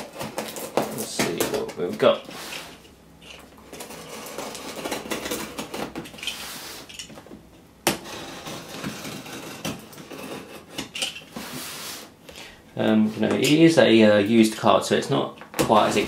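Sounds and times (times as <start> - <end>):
blade cutting open parcel: 0.0 - 1.7.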